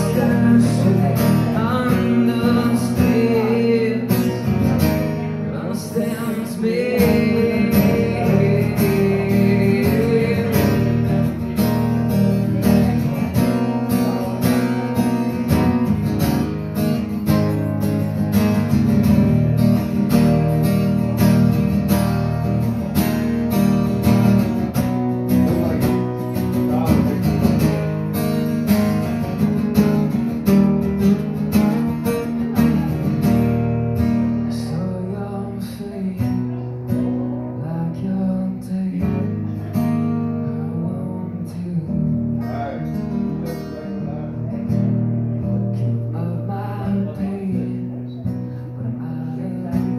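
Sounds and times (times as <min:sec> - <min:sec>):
man singing: 0:00.0 - 0:11.7, 0:34.4 - 0:44.8, 0:45.4 - 0:49.9
guitar strumming: 0:00.0 - 0:49.9.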